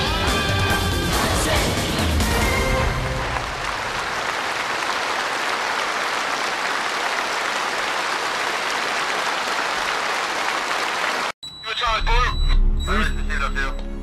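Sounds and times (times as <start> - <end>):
music: 0.0 - 3.5, 12.4 - 14.0
audience applauding: 2.3 - 11.4.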